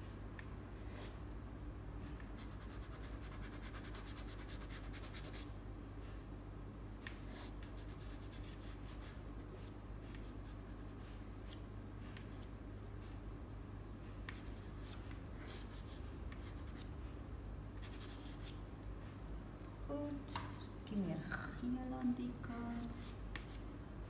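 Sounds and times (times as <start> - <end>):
steady low hum: 0.0 - 24.0
pastel scratching on paper: 2.4 - 5.5, 7.2 - 11.6, 17.8 - 18.6.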